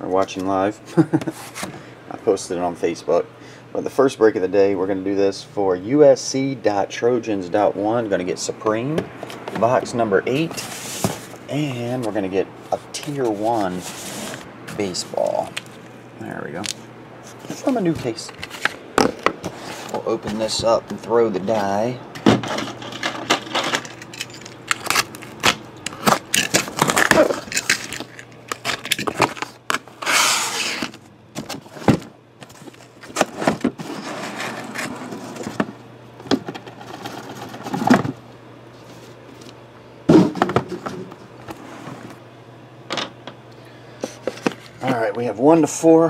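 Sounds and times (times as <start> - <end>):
cardboard tearing: 24.8 - 31.8.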